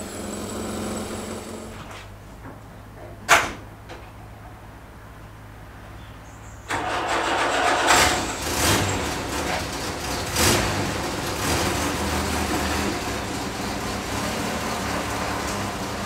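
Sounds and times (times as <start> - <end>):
car engine idling: 0.0 - 2.0, 6.7 - 16.0.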